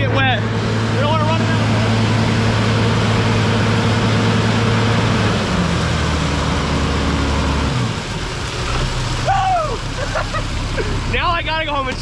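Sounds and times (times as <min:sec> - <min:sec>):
fire truck engine running: 0:00.0 - 0:12.0.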